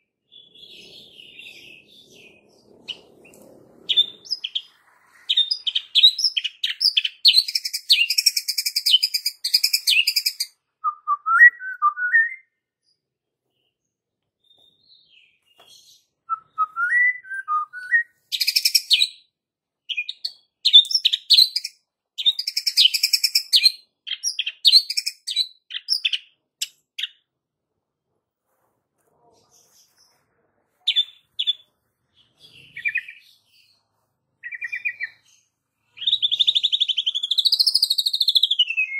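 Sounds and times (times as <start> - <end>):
bird whistled phrases: 5.3 - 12.6, 16.3 - 19.0, 36.0 - 38.9.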